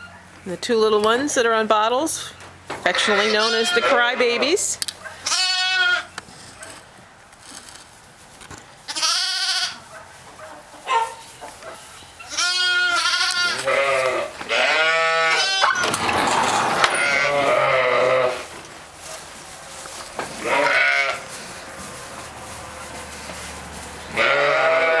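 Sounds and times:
lambs bleating: 0:02.9 - 0:04.6, 0:05.2 - 0:06.1, 0:08.9 - 0:09.8, 0:12.2 - 0:15.8, 0:16.8 - 0:18.5, 0:20.4 - 0:21.5, 0:24.1 - 0:25.0.

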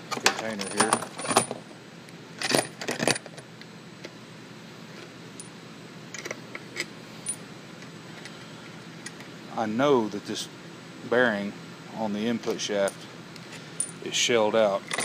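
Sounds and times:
steel bolts clinking into container: 0:00.2 - 0:01.6.

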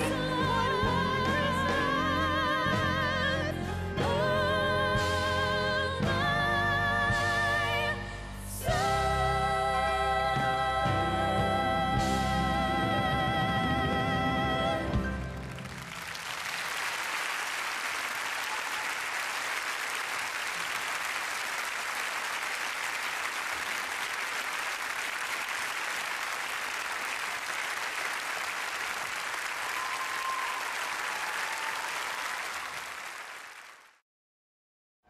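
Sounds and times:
audience applauding: 0:15.1 - 0:34.0.

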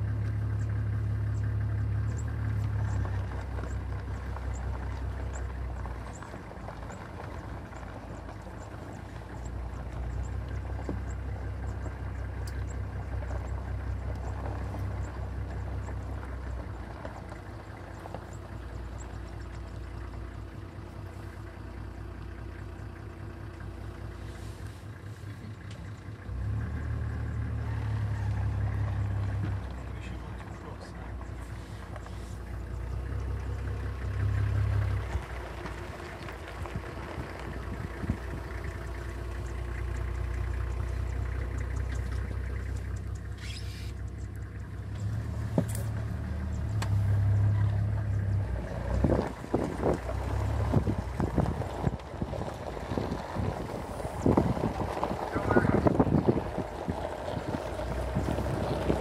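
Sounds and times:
vehicle engine idling: 0:00.0 - 0:59.0
wind buffeting microphone: 0:36.5 - 0:38.8, 0:48.9 - 0:59.0.

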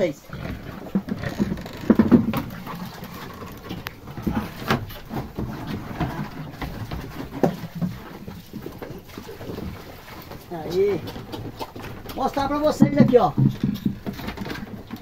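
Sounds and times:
pig grunting and eating: 0:00.0 - 0:15.0
plastic bucket knocking: 0:00.9 - 0:02.6, 0:10.8 - 0:15.0.

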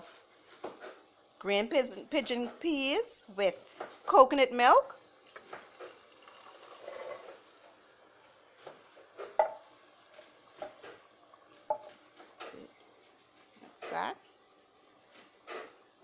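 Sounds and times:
liquid pouring into a pot: 0:05.2 - 0:13.4.

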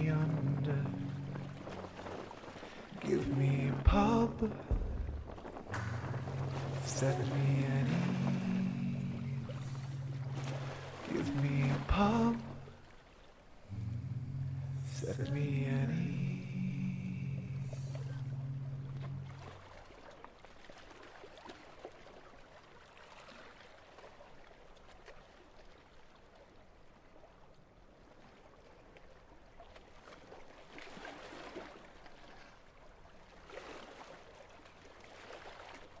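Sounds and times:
small waves washing against rocks: 0:00.0 - 0:13.8.

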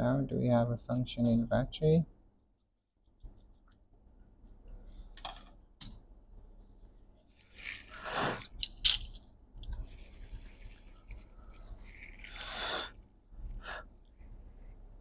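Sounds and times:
tissue and brush wiping circuit board: 0:09.7 - 0:15.0.

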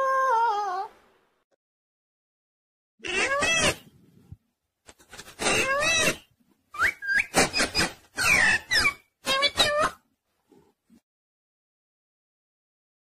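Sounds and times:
parrot calling: 0:05.4 - 0:06.2, 0:06.8 - 0:10.0.

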